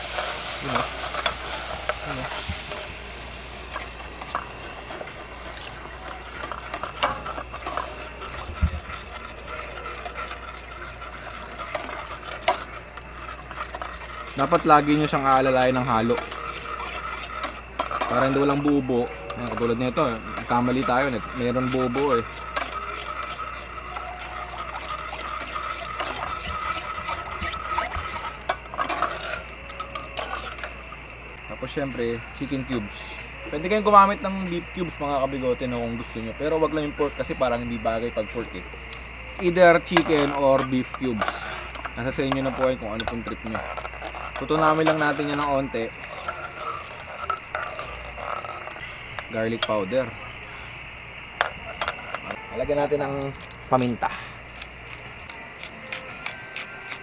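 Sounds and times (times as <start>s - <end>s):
ladle scraping a pot: 0.0s - 30.9s, 39.4s - 50.8s
roux sizzling in a pot: 0.0s - 57.0s.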